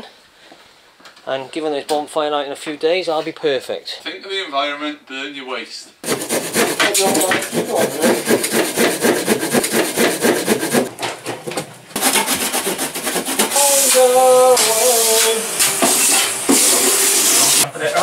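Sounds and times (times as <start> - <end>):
rubbing and scraping on wood: 6.0 - 10.9, 11.9 - 17.7
vacuum cleaner running: 13.5 - 17.6.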